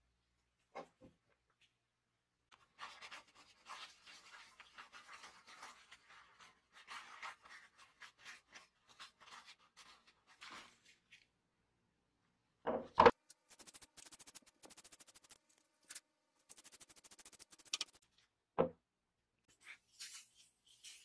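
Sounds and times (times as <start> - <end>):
paper towel rubbing on gear: 2.7 - 11.0, 13.5 - 18.0, 19.5 - 21.0.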